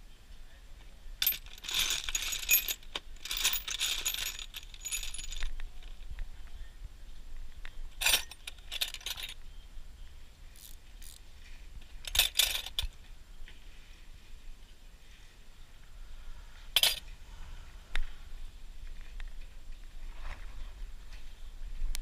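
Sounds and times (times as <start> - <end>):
small metal objects clinking: 1.2 - 6.0, 8.0 - 9.4, 10.6 - 11.2, 12.0 - 12.9, 16.8 - 17.0.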